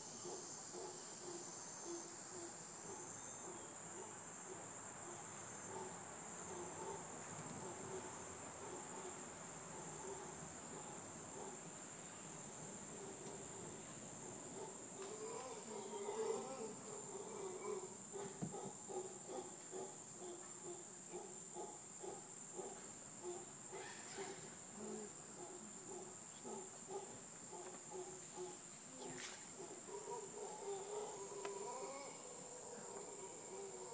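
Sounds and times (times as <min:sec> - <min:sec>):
monkeys roaring: 0:29.9 - 0:33.9.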